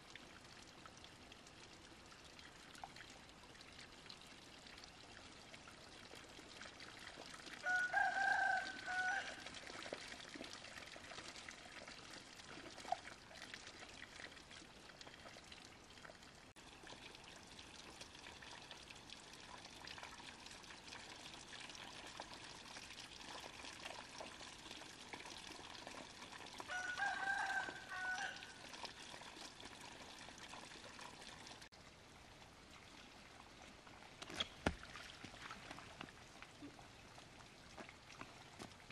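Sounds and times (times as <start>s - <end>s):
running water: 0.0s - 38.9s
rooster crowing: 7.6s - 9.4s, 26.7s - 28.5s.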